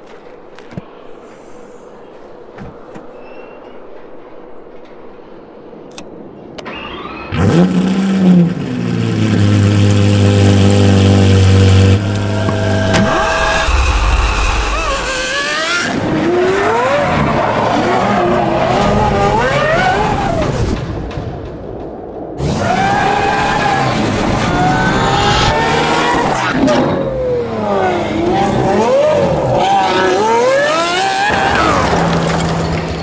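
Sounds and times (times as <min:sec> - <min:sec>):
sports car engine revving: 0:07.3 - 0:17.3, 0:22.4 - 0:31.8.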